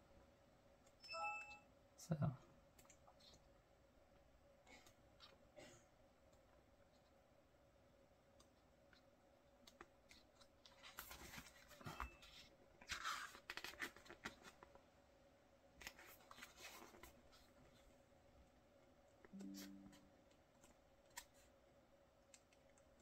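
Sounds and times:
pages turning: 10.1s - 14.7s, 15.8s - 17.5s.

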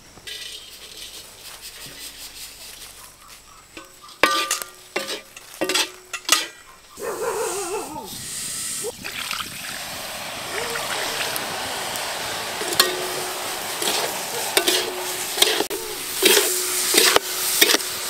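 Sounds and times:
faint sizzle: 0.0s - 18.0s
spatula stirring mixture in pan: 3.7s - 6.6s, 13.8s - 18.0s.

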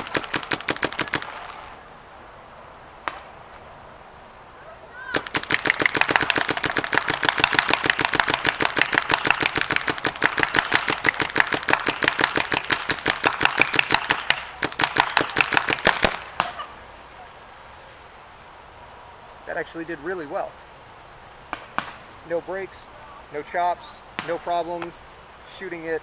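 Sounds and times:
paintball marker rapid firing: 0.0s - 1.5s, 5.1s - 16.6s.

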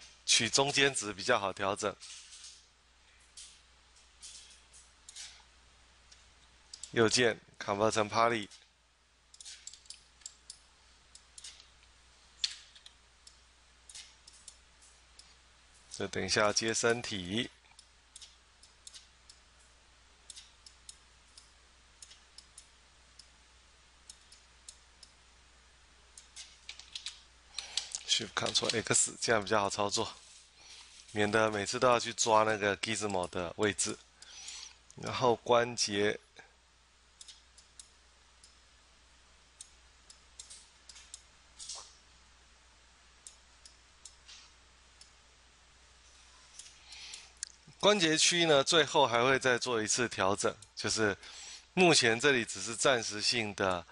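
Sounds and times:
low steady hum: 0.0s - 53.9s
computer mouse clicks: 6.1s - 7.0s, 9.3s - 11.7s, 17.7s - 19.4s, 20.3s - 23.3s, 37.2s - 38.6s.

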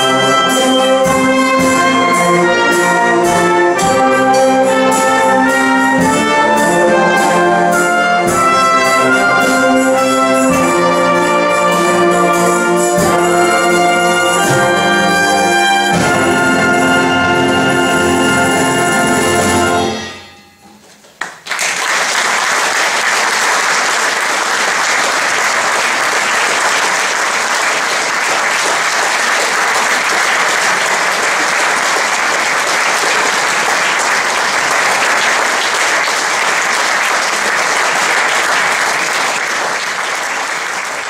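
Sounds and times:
wind band held chord: 0.0s - 20.7s
audience applause: 21.0s - 41.0s.

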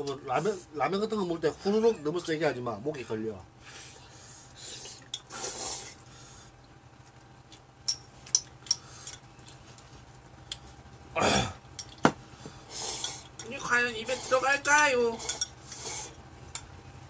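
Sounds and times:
noodle slurping: 4.7s - 6.0s, 12.7s - 13.3s, 15.1s - 16.2s
chopsticks clicking against bowls: 10.5s - 10.7s, 11.8s - 12.0s, 14.5s - 15.6s.

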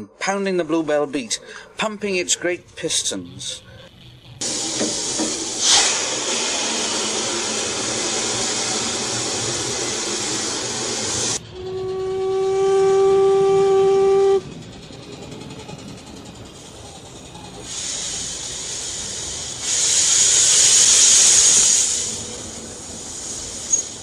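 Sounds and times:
steam rushing: 4.4s - 11.4s, 12.2s - 24.0s
steam whistle blast: 4.5s - 8.9s, 11.3s - 14.4s
faint steam hiss: 16.5s - 24.0s.

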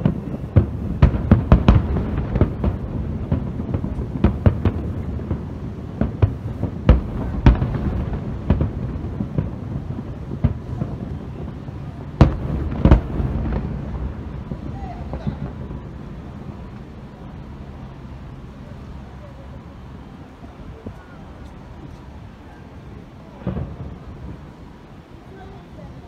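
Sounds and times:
firework shells bursting: 0.0s - 16.9s
continuous low rumble: 0.0s - 26.0s.

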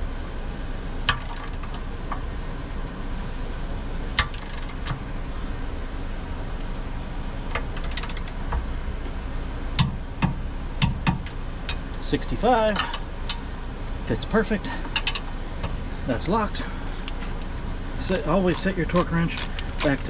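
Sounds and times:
torque wrench ratchet clicks: 1.1s - 1.8s, 4.2s - 4.9s, 7.7s - 8.4s.

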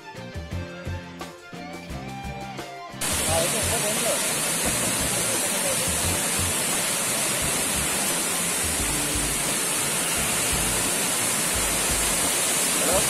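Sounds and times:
waterfall rushing: 3.0s - 13.0s.

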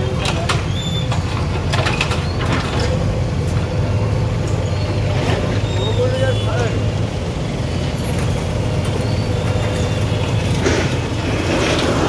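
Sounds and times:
sharp knocks and clatter: 0.0s - 3.7s
diesel engine running: 0.0s - 12.0s.

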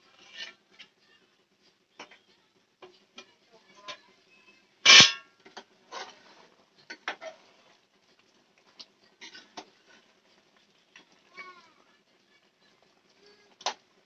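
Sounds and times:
curry being stirred: 0.0s - 1.0s
metal ladle clanging on pot: 4.8s - 5.6s.

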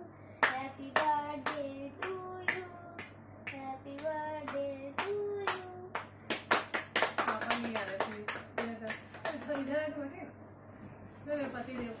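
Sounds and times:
children and family singing: 0.0s - 6.0s
people clapping along: 0.4s - 9.7s.

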